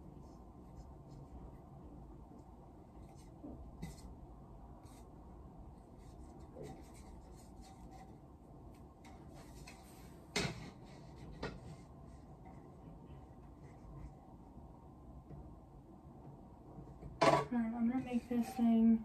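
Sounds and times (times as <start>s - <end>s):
decorations rustling and scraping: 9.0s - 14.2s, 17.3s - 19.0s.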